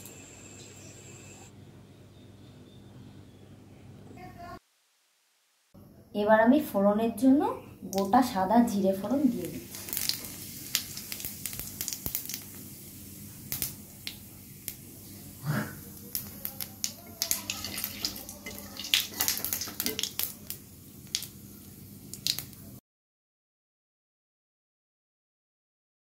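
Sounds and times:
seeds sizzling and popping in oil: 7.8s - 22.8s.

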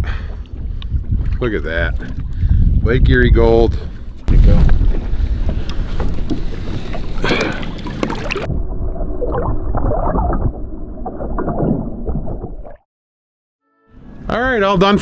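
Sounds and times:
water rushing: 5.7s - 12.7s.

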